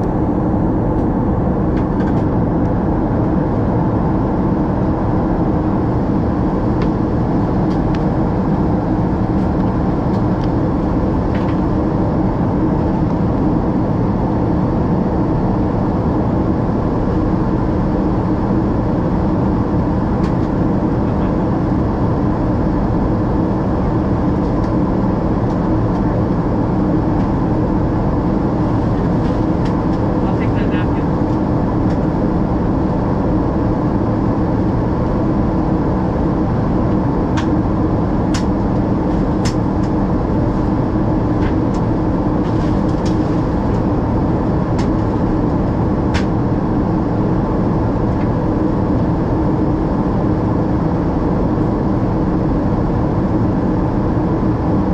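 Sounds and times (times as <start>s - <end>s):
jet engine drone: 0.0s - 54.9s
rushing air in cabin: 0.0s - 54.9s.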